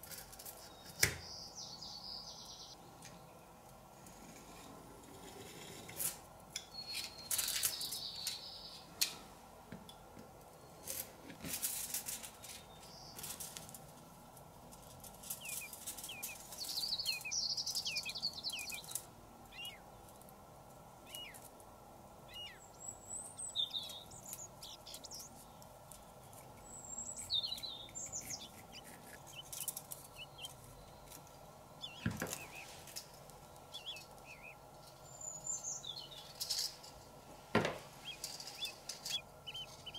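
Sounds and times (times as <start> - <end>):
aluminium foil crinkling: 10.9 - 17.2, 24.2 - 31.4.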